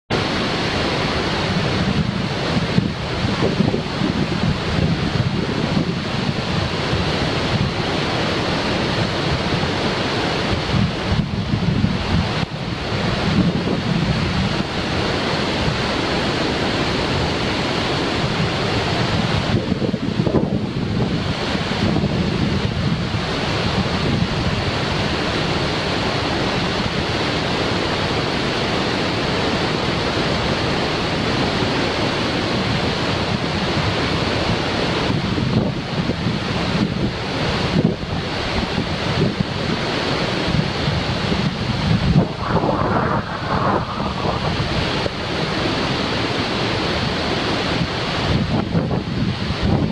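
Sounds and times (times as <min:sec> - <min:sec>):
waterfall rushing: 0:00.1 - 0:20.2, 0:36.4 - 0:48.4
river water over rocks: 0:00.1 - 0:49.8
wind buffeting microphone: 0:00.2 - 0:27.0, 0:35.0 - 0:49.9.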